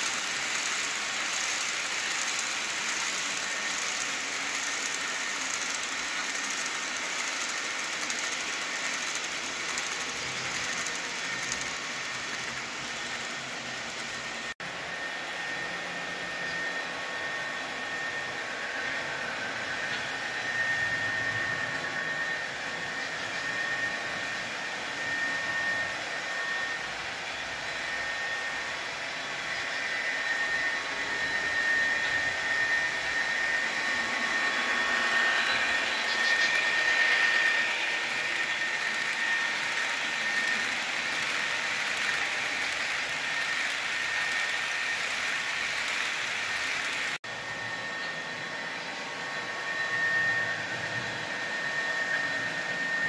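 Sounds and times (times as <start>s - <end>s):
model train running on track: 0.0s - 53.0s.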